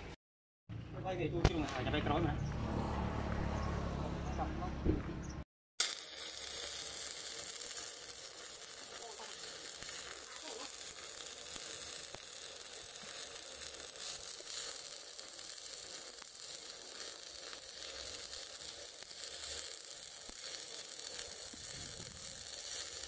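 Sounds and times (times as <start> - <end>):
arc welding crackling sizzle: 5.8 - 23.0.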